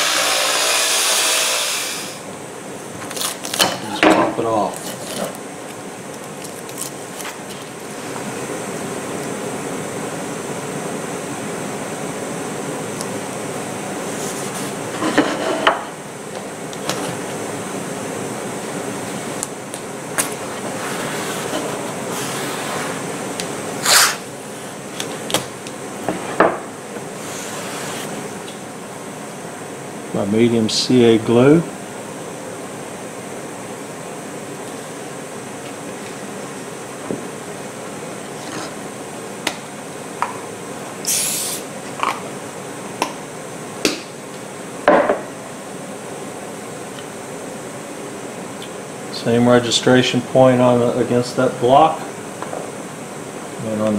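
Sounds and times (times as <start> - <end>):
fan-like shop noise: 0.0 - 53.9
aerosol spray hiss: 41.0 - 41.7.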